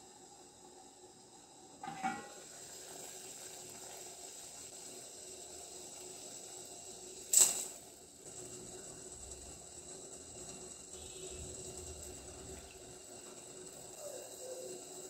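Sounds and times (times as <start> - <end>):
salt sizzling in boiling water: 0.0 - 15.0
water boiling in a pot: 0.0 - 15.0
steel lid clinking: 1.8 - 2.4.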